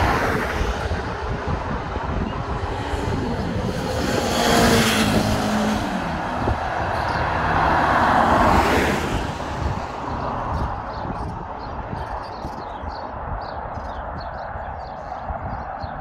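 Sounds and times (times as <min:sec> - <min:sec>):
car passing with tyre noise: 0:00.0 - 0:16.0
motorcycle passing at speed: 0:00.2 - 0:09.8.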